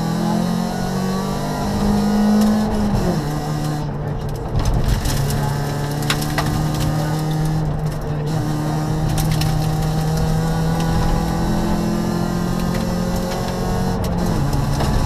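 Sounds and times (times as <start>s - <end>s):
car engine revving from cabin: 0.0s - 4.0s, 4.8s - 15.0s
sharp clicks and knocks: 12.5s - 15.0s.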